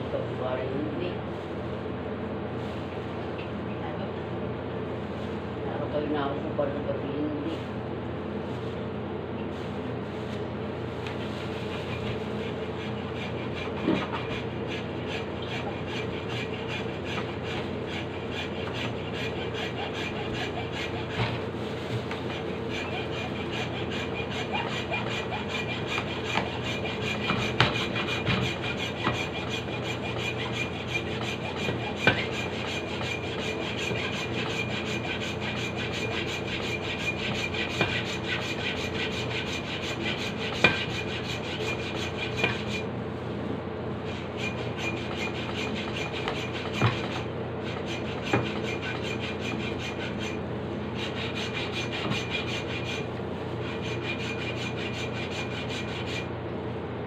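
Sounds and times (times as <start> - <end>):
hand saw rasping through wood: 11.6 - 42.9, 44.0 - 56.3.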